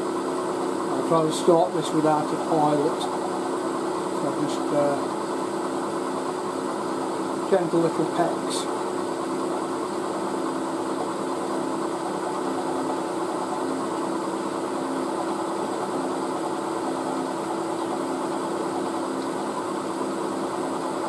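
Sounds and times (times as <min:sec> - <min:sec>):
milling machine spindle hum: 0:00.0 - 0:21.0.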